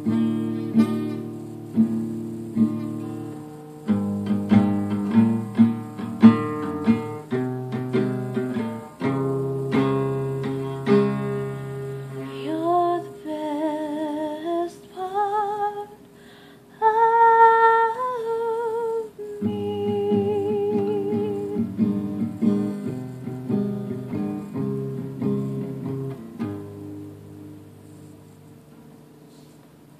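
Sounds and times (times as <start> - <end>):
acoustic guitar chords: 0.0 - 29.9
woman singing wordless notes: 12.0 - 16.1, 16.7 - 22.6.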